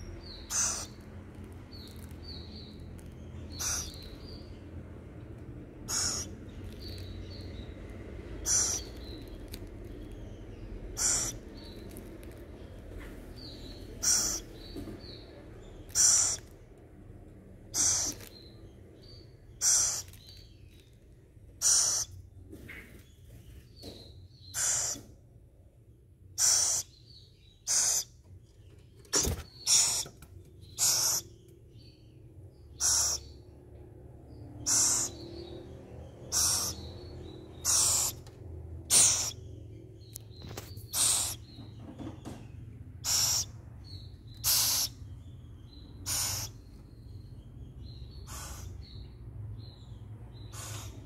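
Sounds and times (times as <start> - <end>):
owl chick hissing rasp: 0.5 - 1.0, 3.6 - 4.0, 5.9 - 6.3, 8.4 - 8.9, 11.0 - 11.4, 14.0 - 14.4, 15.9 - 16.4, 17.8 - 18.3, 19.6 - 20.2, 21.6 - 22.1, 24.6 - 25.0, 26.4 - 26.9, 27.7 - 28.1, 29.6 - 30.0, 30.8 - 31.2, 32.8 - 33.2, 34.7 - 35.3, 36.3 - 36.8, 37.6 - 38.2, 38.9 - 39.4, 40.9 - 41.4, 43.0 - 43.5, 44.4 - 45.0, 46.0 - 46.6, 48.3 - 48.8, 50.5 - 51.0.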